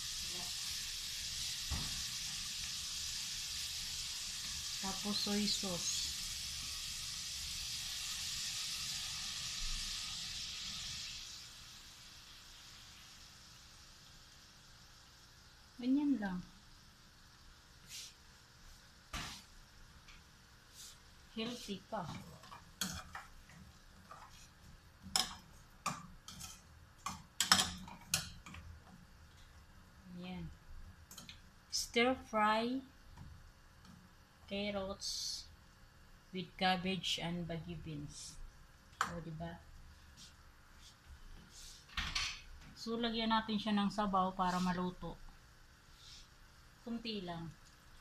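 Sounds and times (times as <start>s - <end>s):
vegetables sizzling in frying pan: 0.0s - 48.0s
spatula scraping frying pan: 21.6s - 28.6s.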